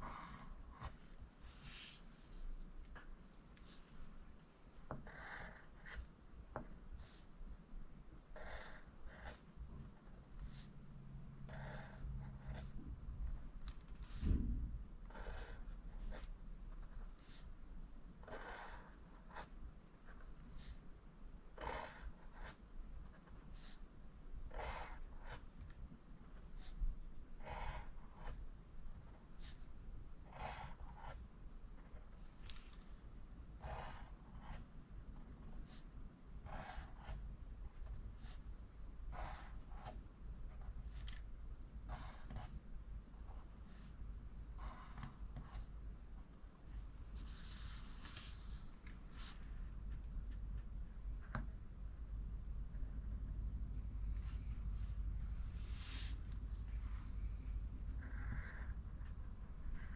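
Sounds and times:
pencil scratching on paper: 0.0 - 2.0, 4.9 - 6.1, 8.4 - 9.5, 11.5 - 12.8, 15.1 - 17.5, 18.2 - 19.5, 21.6 - 23.8, 24.5 - 25.5, 27.4 - 28.4, 30.2 - 31.2, 33.6 - 34.7, 35.4 - 38.4, 39.1 - 41.2, 41.9 - 42.5, 44.6 - 45.7
low thump: 14.2 - 14.8.

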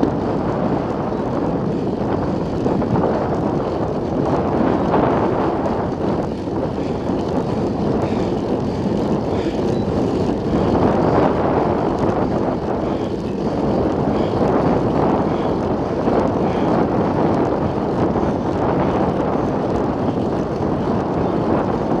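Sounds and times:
wind rushing over microphone: 0.0 - 22.0.

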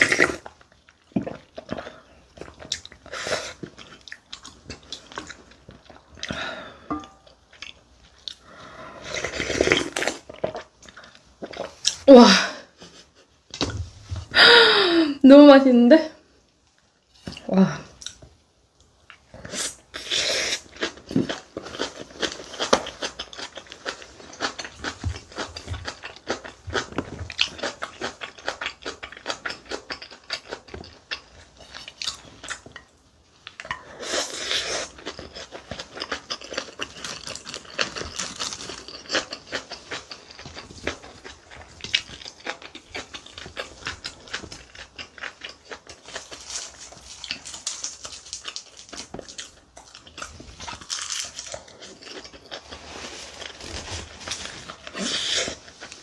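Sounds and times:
wet crunchy chewing: 34.3 - 56.0.

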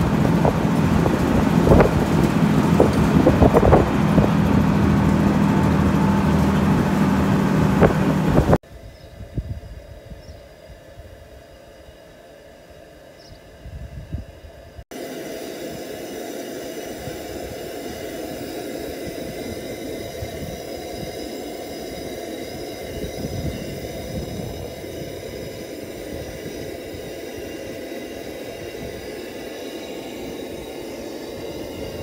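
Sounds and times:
tractor engine running: 0.0 - 8.6, 15.8 - 32.0.

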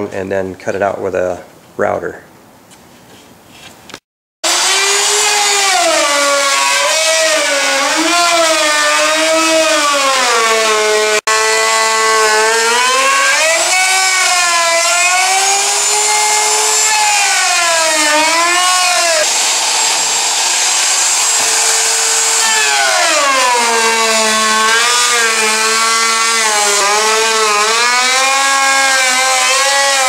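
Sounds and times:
router cutting wood: 4.4 - 30.0.

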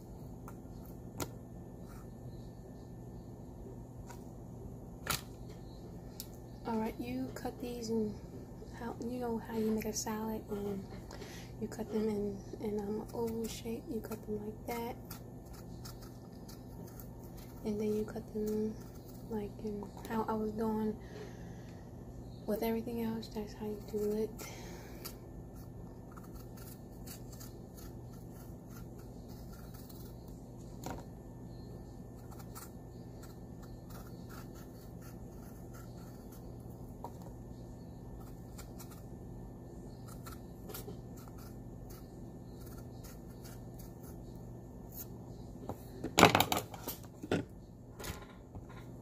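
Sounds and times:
faint steady hum: 0.0 - 49.0
peeler scraping cucumber skin: 12.8 - 19.4, 25.0 - 30.3, 32.2 - 36.8, 38.1 - 39.1, 39.9 - 45.1.

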